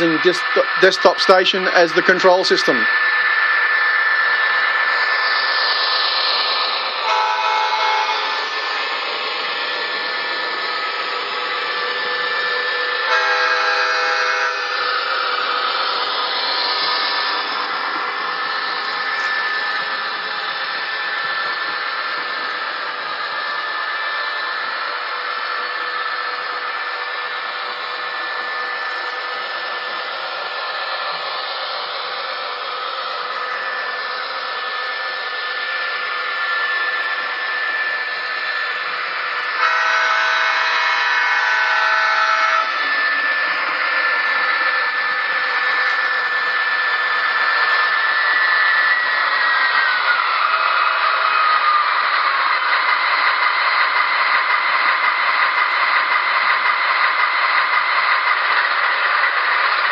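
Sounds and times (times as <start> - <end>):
diesel engine running: 0.0 - 59.9
model trains whirring: 0.0 - 59.9
train horn blast: 7.0 - 8.6, 13.1 - 14.7, 39.6 - 42.8.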